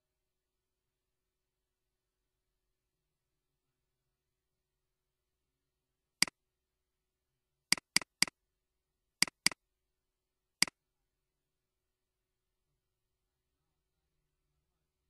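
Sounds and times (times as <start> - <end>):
computer mouse button clicking: 7.7 - 8.3, 9.2 - 9.6.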